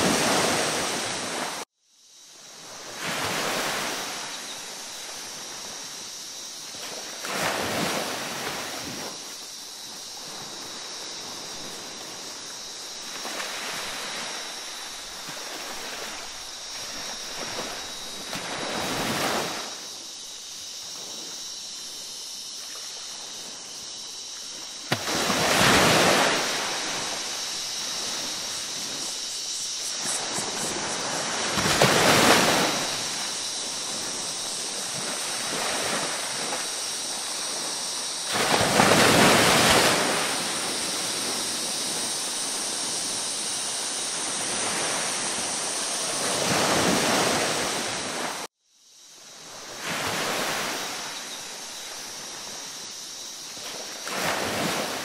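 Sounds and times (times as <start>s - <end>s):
ocean waves surging: 0.0s - 1.6s, 10.2s - 19.8s, 24.6s - 48.5s.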